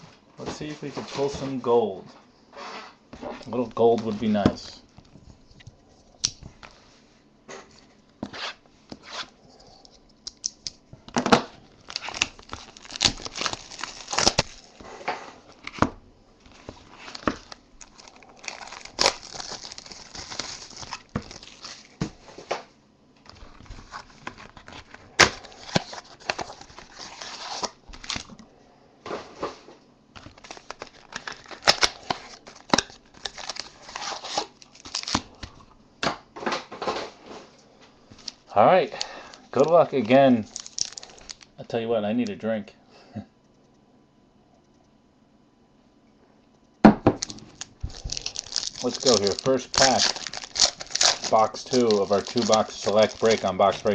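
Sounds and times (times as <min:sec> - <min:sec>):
foil wrappers crinkling and tearing: 0:11.5 - 0:15.8, 0:16.4 - 0:22.5, 0:23.2 - 0:28.4, 0:30.2 - 0:35.6, 0:39.0 - 0:41.5, 0:47.2 - 0:53.9.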